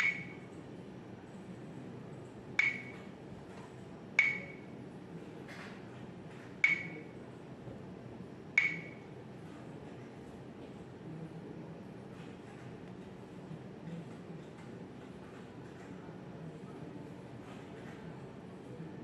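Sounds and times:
touchscreen beeping pings: 0:00.0 - 0:00.4, 0:02.6 - 0:03.0, 0:04.2 - 0:04.7, 0:06.6 - 0:07.1, 0:08.6 - 0:09.0.

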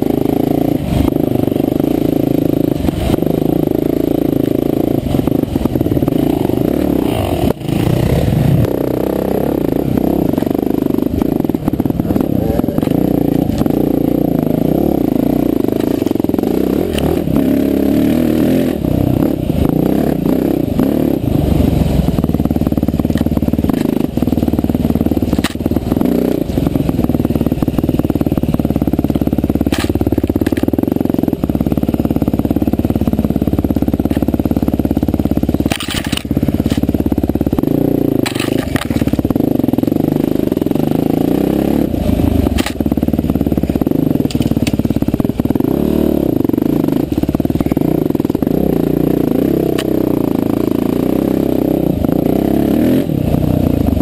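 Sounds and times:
off-road motorcycle engine: 0:00.0 - 0:54.0
bike knocks and rattles: 0:22.1 - 0:39.8, 0:42.5 - 0:45.6.

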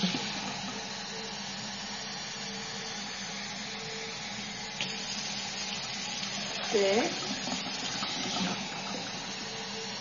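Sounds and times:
tap water filling a cup: 0:04.8 - 0:09.4.

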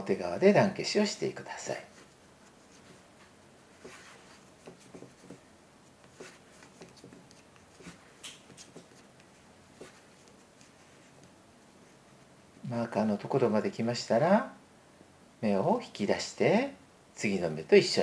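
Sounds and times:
knitting needles clicking: 0:08.2 - 0:09.3.

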